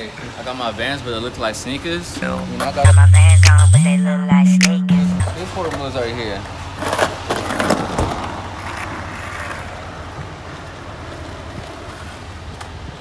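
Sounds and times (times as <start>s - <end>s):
skateboard wheels rolling on asphalt: 5.7s - 13.0s.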